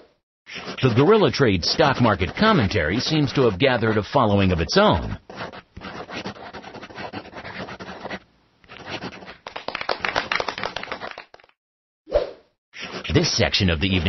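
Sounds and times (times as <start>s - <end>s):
marker scratching lines: 0.5s - 9.4s, 12.8s - 14.0s.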